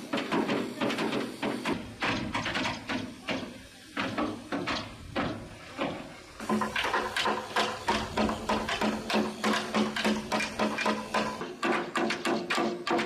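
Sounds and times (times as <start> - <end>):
metal tools scraping steel deck: 4.1 - 13.0.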